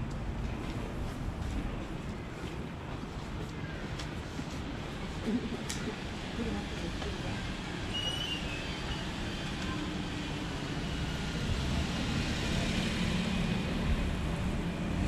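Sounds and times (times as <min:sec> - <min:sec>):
van driving past: 0:10.8 - 0:15.0.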